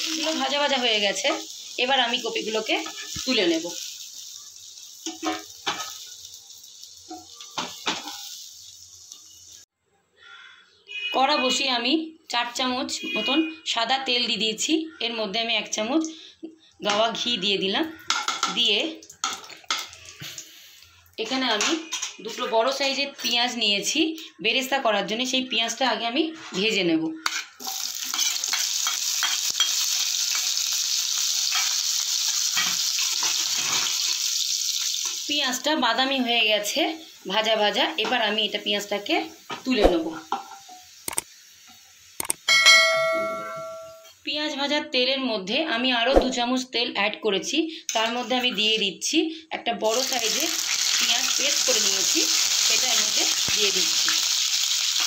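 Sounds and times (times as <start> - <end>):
vegetables sizzling in oil: 0.0 - 9.7, 25.7 - 44.6, 47.9 - 55.0
spatula scraping a pan: 2.8 - 3.2, 7.1 - 8.5, 27.2 - 29.9, 32.6 - 34.3.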